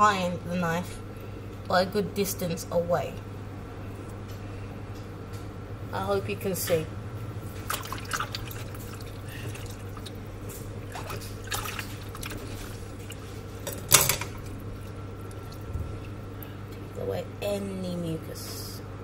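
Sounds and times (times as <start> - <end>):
low hum: 0.0 - 18.0
water splashing in a bowl: 7.5 - 16.2.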